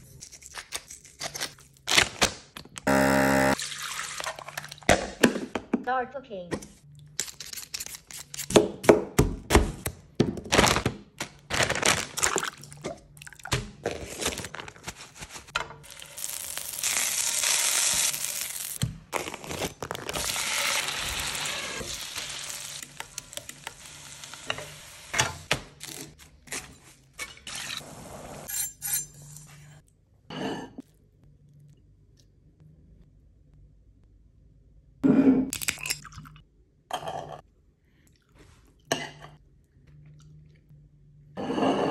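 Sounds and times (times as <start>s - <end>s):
potatoes sizzling in pan: 16.0s - 18.8s, 20.2s - 25.2s.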